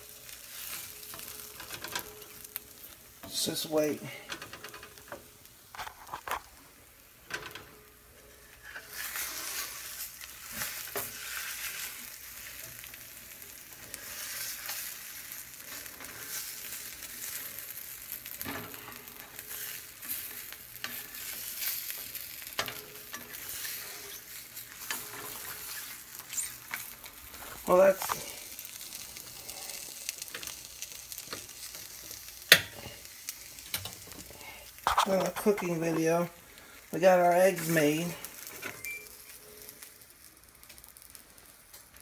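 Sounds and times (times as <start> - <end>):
eggs sizzling in a frying pan: 0.0 - 42.0.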